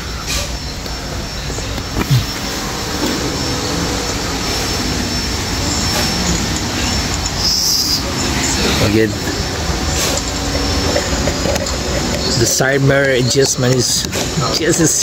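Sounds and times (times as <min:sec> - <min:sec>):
steady roar: 0:01.1 - 0:13.1.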